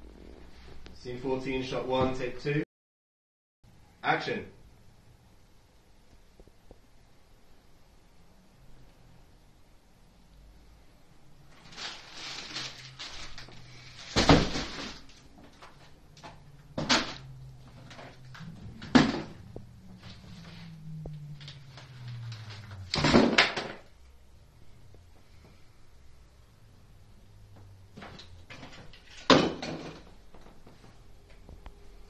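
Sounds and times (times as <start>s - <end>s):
objects knocking and clattering: 14.1s - 20.1s, 22.8s - 23.9s, 28.0s - 30.6s.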